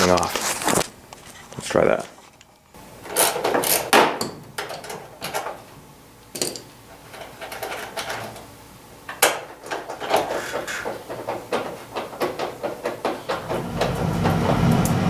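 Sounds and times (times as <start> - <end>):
knocks and clatters of plastic panels: 9.1 - 14.7.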